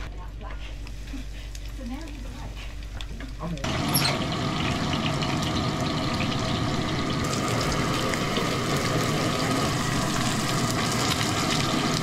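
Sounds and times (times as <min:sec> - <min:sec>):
gas burner flame hissing: 0:00.0 - 0:12.0
squid sizzling in a frying pan: 0:00.8 - 0:12.0.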